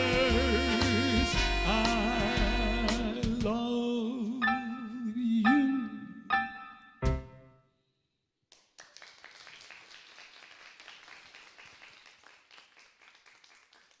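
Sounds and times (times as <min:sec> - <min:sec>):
audience applauding quietly: 0:08.5 - 0:14.0.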